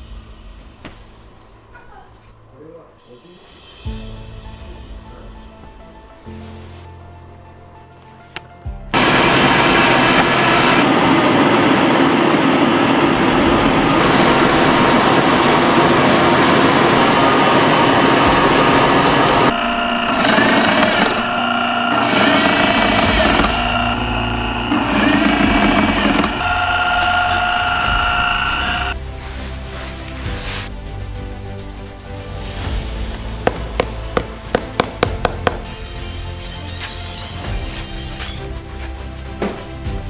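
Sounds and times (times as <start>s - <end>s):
loud machine whir: 9.0s - 29.0s
leather skiving machine running: 9.0s - 30.6s.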